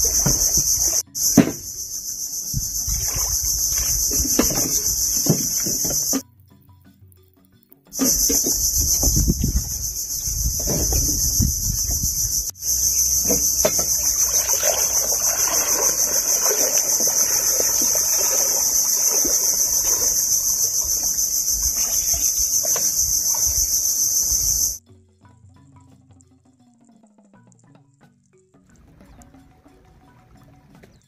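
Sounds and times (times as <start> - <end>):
high-pitched insect chorus: 0.0 - 6.2, 8.0 - 24.8
water trickling and splashing: 0.0 - 6.2, 8.0 - 24.8.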